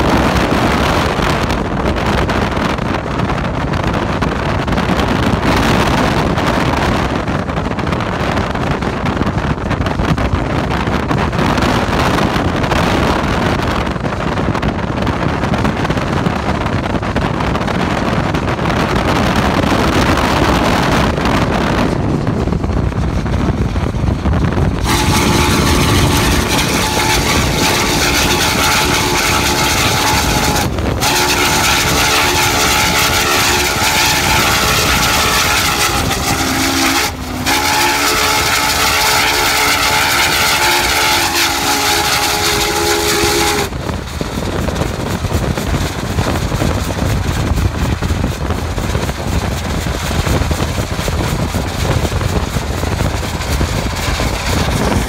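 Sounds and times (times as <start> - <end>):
wind: 0.0 - 55.0
car road noise: 12.4 - 55.0
steam locomotive whistle: 24.8 - 43.9.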